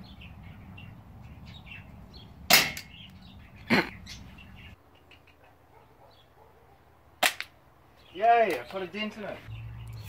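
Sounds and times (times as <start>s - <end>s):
pistol shots cracking: 2.5s - 2.8s.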